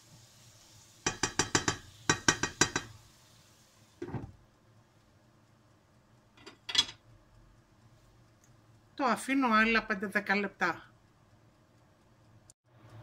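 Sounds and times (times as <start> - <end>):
spatula tapping frying pan: 1.0 - 3.1.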